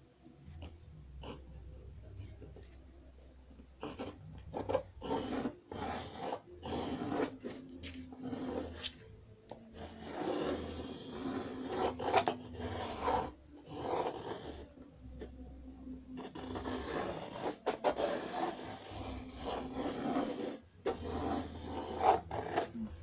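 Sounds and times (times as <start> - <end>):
pencil scratching on paper: 0.5 - 15.4, 16.1 - 22.8.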